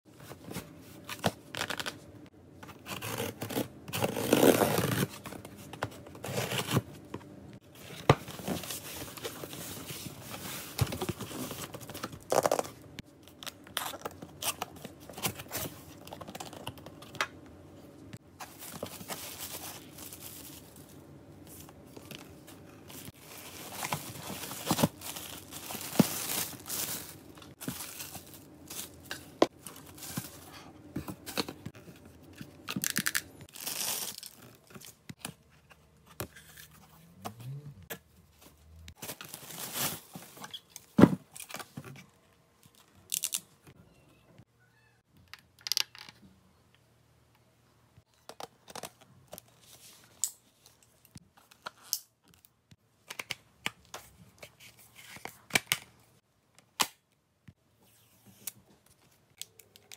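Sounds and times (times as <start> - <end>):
plastic wrap rustling: 18.4 - 30.6, 38.9 - 40.9
cardboard tearing and rustling: 23.1 - 28.4.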